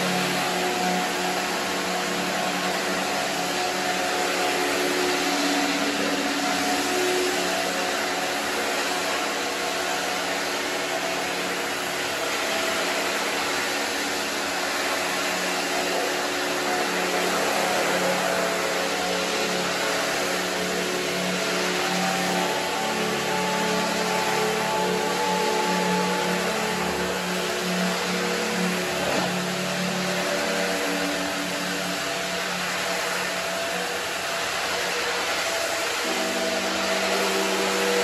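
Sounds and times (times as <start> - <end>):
electric motor hum: 0.0 - 38.0
rotating brush scrubbing wet carpet: 0.0 - 38.0.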